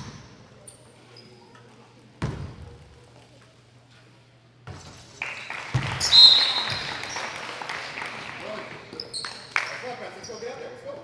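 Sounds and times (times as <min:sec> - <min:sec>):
basketball bouncing on hardwood floor: 0:02.2 - 0:02.7, 0:05.7 - 0:06.0.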